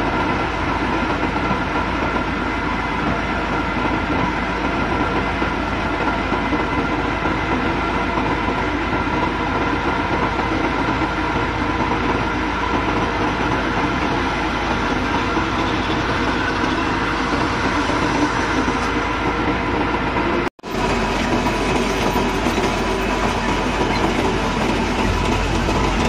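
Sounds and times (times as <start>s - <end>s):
heavy diesel engine clattering: 3.0s - 26.0s.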